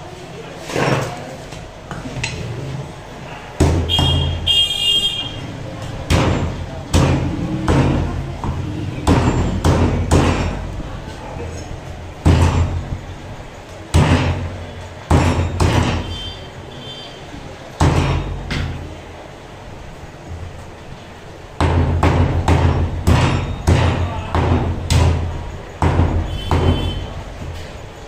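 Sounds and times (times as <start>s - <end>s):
cleaver chopping on wooden block: 6.1s - 10.6s, 15.1s - 16.1s.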